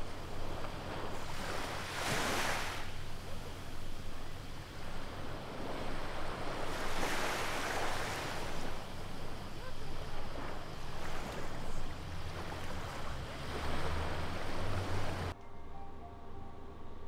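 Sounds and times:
small waves washing up beach: 0:00.0 - 0:15.3
steady low rumble: 0:02.9 - 0:07.0, 0:08.3 - 0:17.0.

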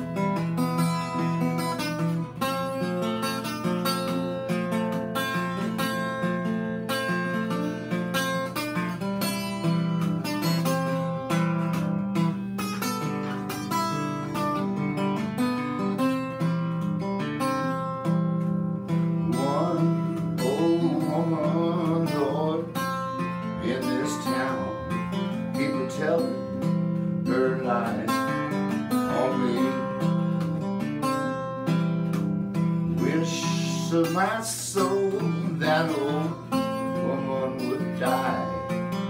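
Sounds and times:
acoustic guitar playing country blues: 0:00.0 - 0:39.0
person singing: 0:19.2 - 0:30.2, 0:32.9 - 0:39.0.

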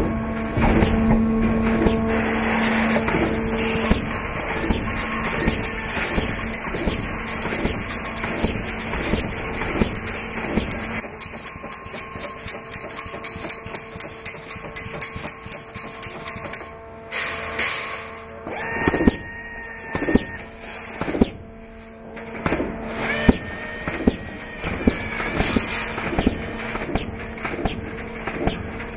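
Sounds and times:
machine hum: 0:00.0 - 0:28.9
sharp metallic knocks: 0:00.6 - 0:02.1, 0:03.0 - 0:16.7, 0:22.4 - 0:28.9
rapid regular ticking: 0:04.0 - 0:15.8
thin high whine: 0:22.9 - 0:26.8.

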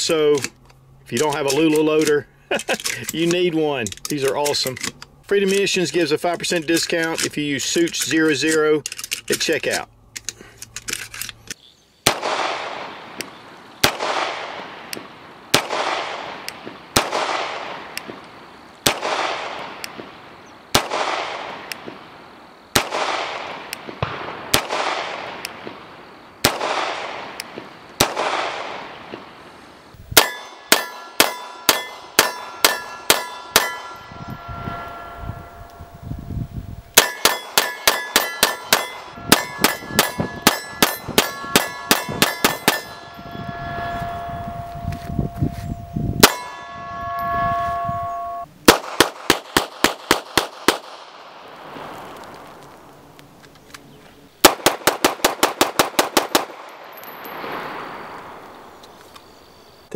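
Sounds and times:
rapid pistol shots ringing: 0:12.0 - 0:13.2, 0:13.8 - 0:14.8, 0:15.5 - 0:18.0, 0:18.8 - 0:20.0, 0:20.7 - 0:21.7, 0:22.7 - 0:25.7, 0:26.4 - 0:29.2, 0:30.2 - 0:34.0, 0:37.0 - 0:43.0, 0:48.6 - 0:51.1, 0:54.4 - 0:56.7
pistol shots with echo: 0:12.0 - 0:18.2, 0:18.8 - 0:22.0, 0:22.7 - 0:29.3, 0:30.2 - 0:35.1, 0:36.9 - 0:43.6, 0:46.2 - 0:51.4, 0:54.4 - 0:58.4.

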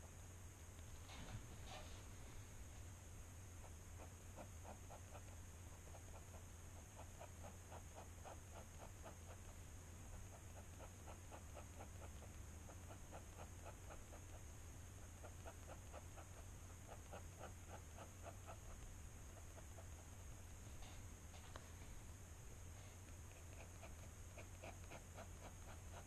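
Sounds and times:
pen nib scratching on paper: 0:03.6 - 0:14.4, 0:15.0 - 0:20.2, 0:23.1 - 0:26.0.

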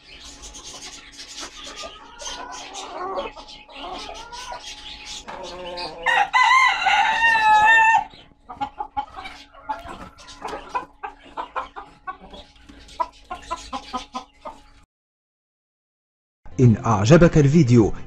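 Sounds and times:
chickens clucking: 0:00.0 - 0:14.9
rooster crowing: 0:02.1 - 0:08.2.

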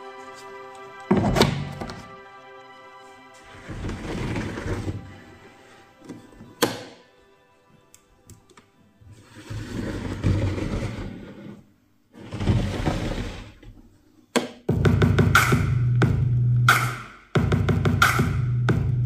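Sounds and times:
electronic music: 0:00.0 - 0:08.0, 0:14.7 - 0:19.0
heavy bass beat: 0:14.7 - 0:19.0.

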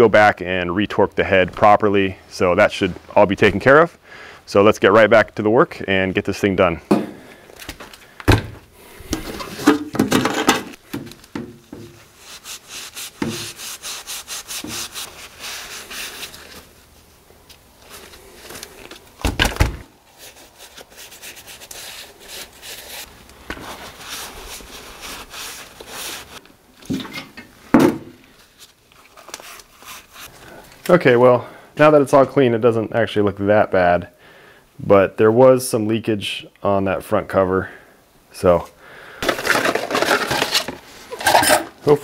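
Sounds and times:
towel wiping strokes: 0:11.6 - 0:17.0, 0:20.0 - 0:26.4, 0:28.3 - 0:30.3.

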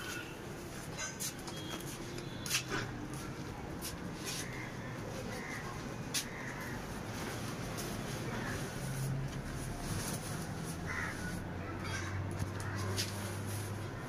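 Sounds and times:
fabric rustling and flapping: 0:06.3 - 0:11.5.

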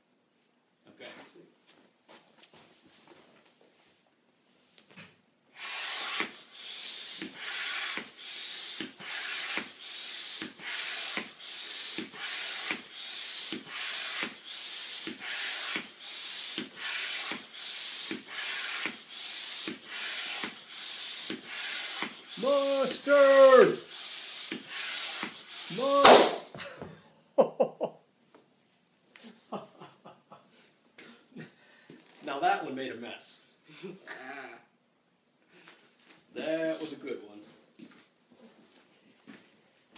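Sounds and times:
hand pump air hiss: 0:05.6 - 0:26.4.

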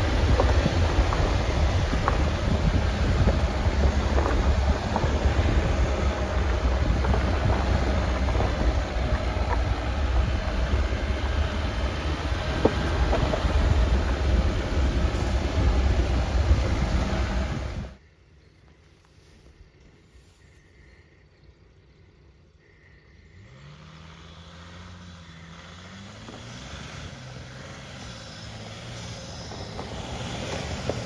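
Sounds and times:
vehicle engine and tyres rumbling: 0:00.0 - 0:31.0.

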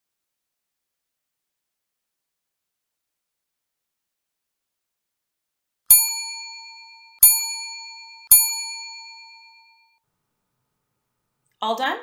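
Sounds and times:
bright bell-like chime: 0:05.9 - 0:10.0.

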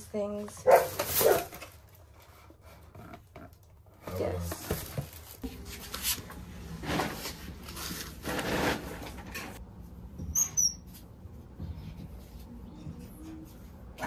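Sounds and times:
valve squeaking: 0:10.2 - 0:10.9.

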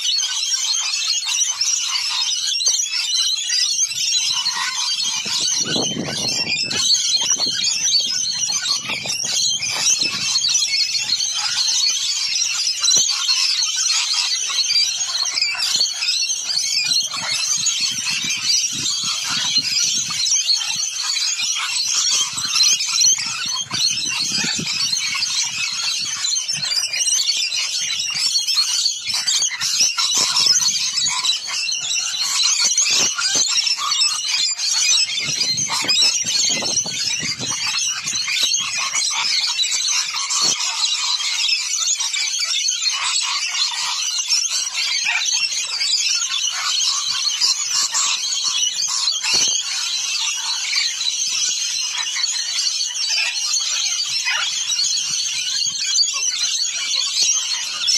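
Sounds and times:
lorikeets screeching and chattering: 0:00.0 - 0:57.9.

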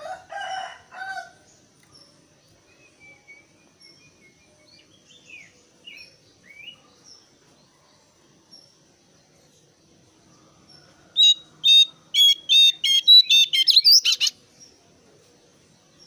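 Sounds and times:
songbird calling: 0:01.8 - 0:07.2, 0:10.3 - 0:14.7.

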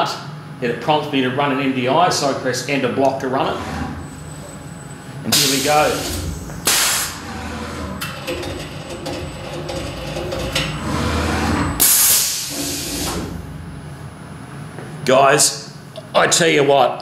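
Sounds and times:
low hum of motors: 0:00.0 - 0:16.3
compressed air hisses: 0:05.3 - 0:07.2, 0:11.8 - 0:13.3.

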